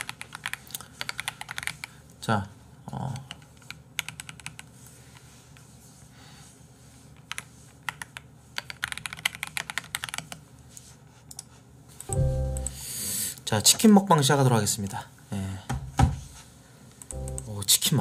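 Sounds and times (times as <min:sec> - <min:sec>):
typing on computer keyboard: 0:00.0 - 0:01.9, 0:03.1 - 0:04.7, 0:07.2 - 0:10.4.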